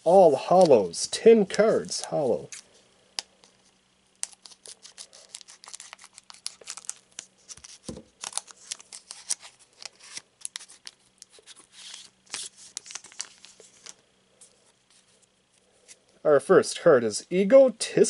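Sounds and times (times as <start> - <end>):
foil wrapper crinkling: 4.2 - 14.0.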